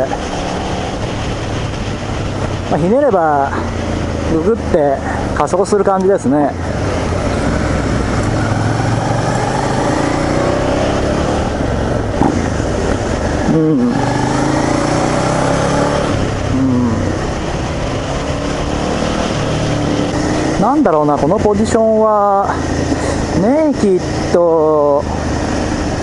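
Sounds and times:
motorcycle engine under throttle: 0.0s - 26.0s
wind and road noise: 0.0s - 26.0s.

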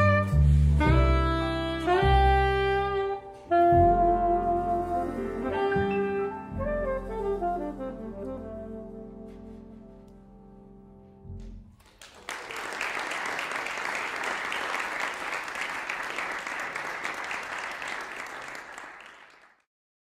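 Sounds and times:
alto saxophone notes: 0.0s - 10.4s
audience applauding: 11.8s - 19.7s.

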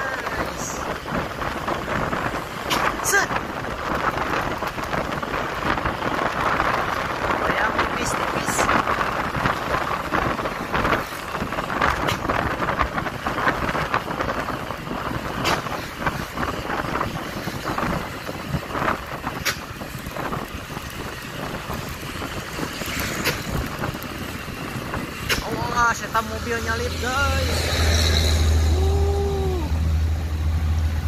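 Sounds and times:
wind rushing over microphone: 0.0s - 30.4s
road and traffic noise: 0.0s - 31.0s.

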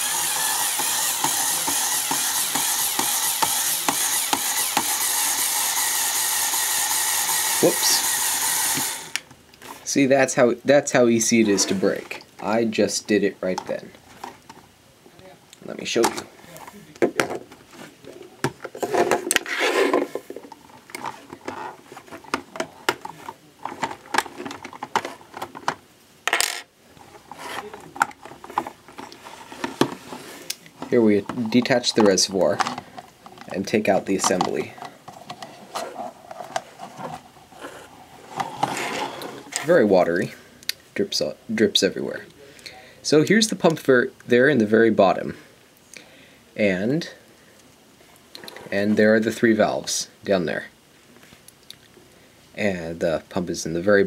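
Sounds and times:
small electric motor running: 0.0s - 9.2s
plastic parts clicking and knocking: 0.3s - 5.0s, 17.0s - 17.6s, 18.4s - 37.3s.

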